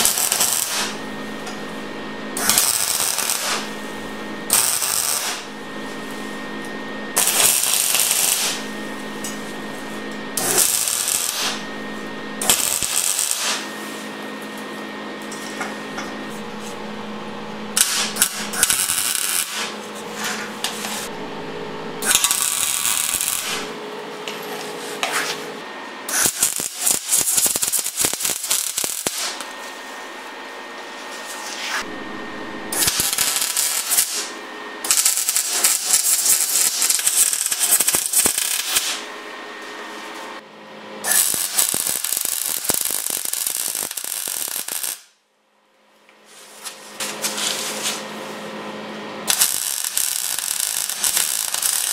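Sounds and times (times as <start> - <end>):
arc welding crackle: 0.0 - 14.1, 16.2 - 21.2, 22.0 - 23.8, 26.1 - 29.7, 31.4 - 39.1, 41.0 - 45.2, 46.6 - 48.1, 49.3 - 51.9
steady hum: 0.0 - 43.0.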